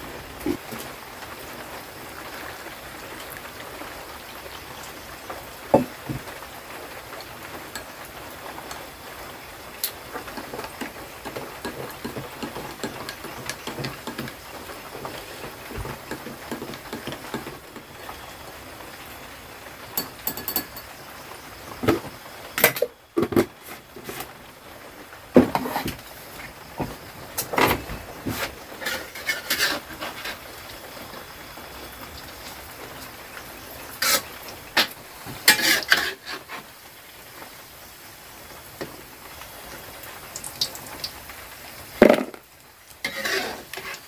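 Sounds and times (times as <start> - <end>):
steady rain: 0.0 - 44.0
hot water pouring into glass: 19.8 - 21.0
spoon clinking against glass: 20.0 - 20.9.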